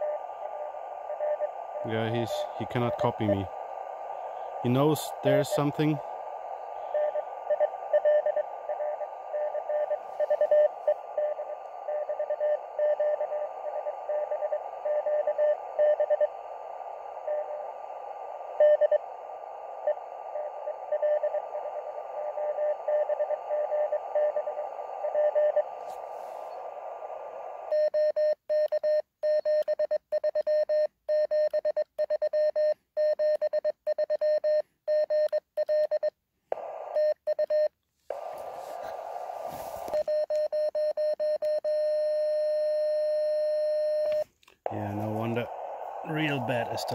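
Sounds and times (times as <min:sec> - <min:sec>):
radio band hiss: 0:00.0 - 0:27.7, 0:36.5 - 0:37.0, 0:38.1 - 0:40.1, 0:44.0 - 0:46.9
weak morse code signal: 0:00.0 - 0:46.9
clean morse sidetone: 0:01.1 - 0:03.5, 0:04.1 - 0:06.0, 0:36.9 - 0:46.9.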